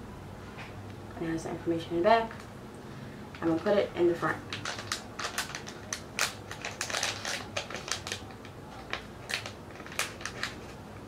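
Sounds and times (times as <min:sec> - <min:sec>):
plastic pouch crinkling: 0:04.4 - 0:10.8.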